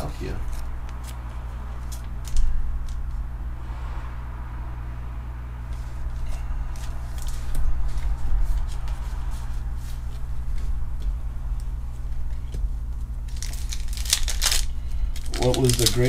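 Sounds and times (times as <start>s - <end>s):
steady low hum: 0.0s - 16.0s
cards clicking and rustling: 13.3s - 16.0s.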